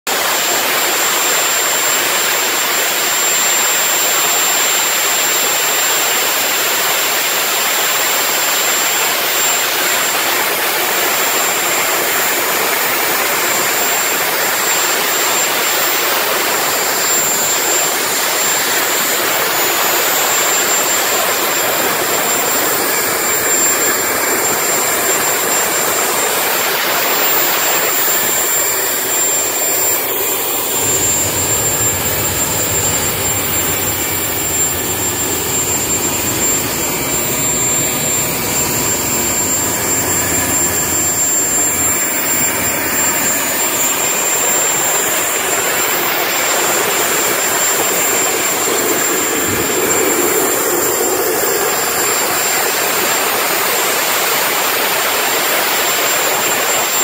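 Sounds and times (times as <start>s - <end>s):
high turbine whine: 0.1s - 57.0s
jet engine exhaust rush: 0.1s - 57.0s.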